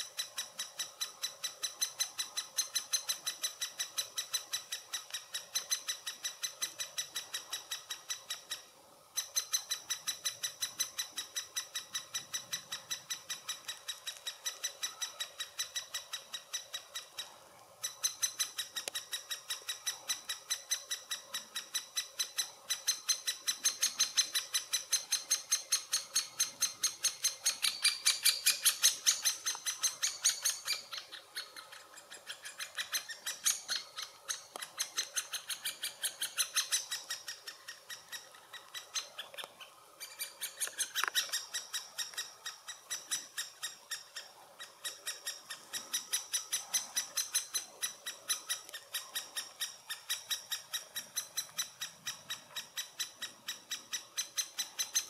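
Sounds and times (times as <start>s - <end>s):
nestlings begging calls: 17.8s - 55.0s.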